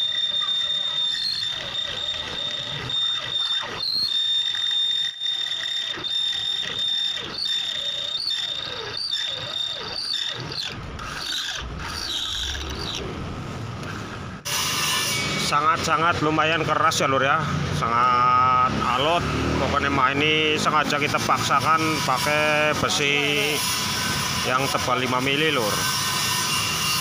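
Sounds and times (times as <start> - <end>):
drill bit squealing in steel: 0.0 - 13.1, 19.8 - 27.0
drill grinding: 0.0 - 16.7, 18.5 - 27.0.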